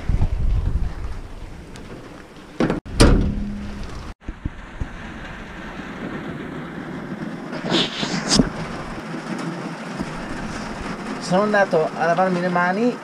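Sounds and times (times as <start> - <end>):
knocks or rustles: 0.2 - 9.4
heavy rain on cab roof: 4.2 - 13.0.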